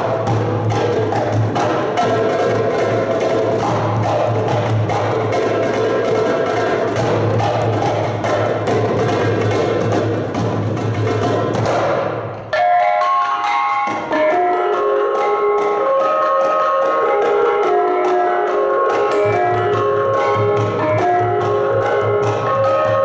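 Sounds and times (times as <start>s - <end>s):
gamelan music: 0.0s - 23.0s
ringing struck bronze notes: 12.5s - 23.0s.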